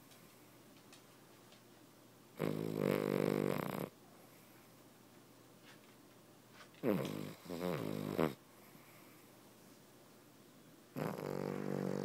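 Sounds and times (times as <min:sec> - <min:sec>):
dog snoring: 0:02.4 - 0:04.0, 0:06.8 - 0:08.9, 0:11.0 - 0:12.0.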